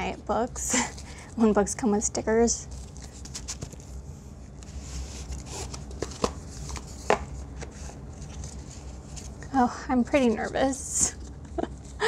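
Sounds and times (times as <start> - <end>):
packaging rustling and sliding: 2.7 - 4.0, 4.6 - 9.4.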